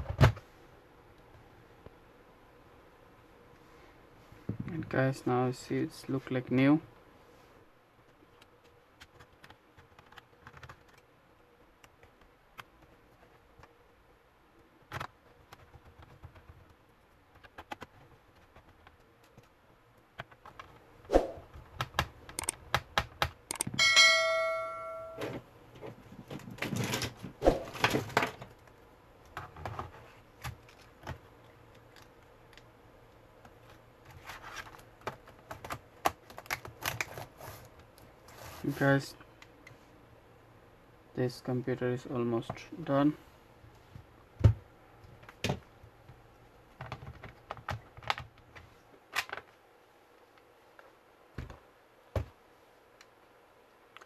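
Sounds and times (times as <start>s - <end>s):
laptop parts clicking and rattling: 8.6s - 11.1s, 14.8s - 19.6s, 20.2s - 20.8s, 21.5s - 23.8s, 28.1s - 32.7s, 33.4s - 37.4s, 46.8s - 49.5s
keyboard keys clicking: 21.7s - 23.8s
short metallic ring: 23.8s - 25.3s.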